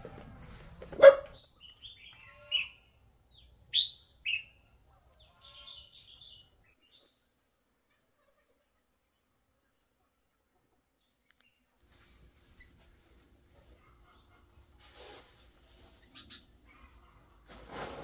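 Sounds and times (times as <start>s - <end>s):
small birds chirping: 0.2s - 14.5s, 15.7s - 17.2s
dog barking: 0.9s - 1.4s.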